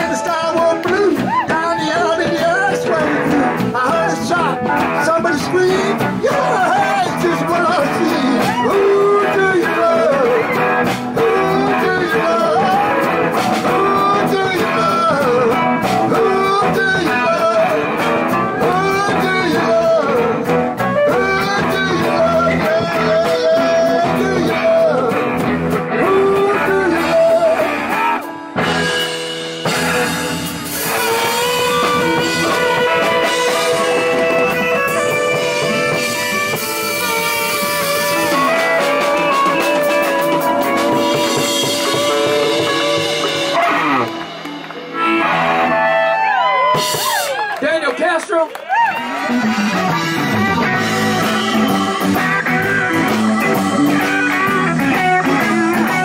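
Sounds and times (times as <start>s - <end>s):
man singing into a microphone: 0.0s - 28.3s, 37.0s - 43.8s, 53.0s - 56.0s
blues band playing: 0.0s - 56.0s.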